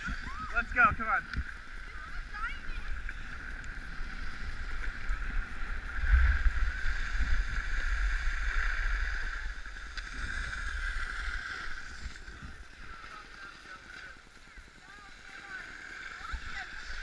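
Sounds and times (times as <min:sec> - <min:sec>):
wind buffeting microphone: 0:00.0 - 0:03.8.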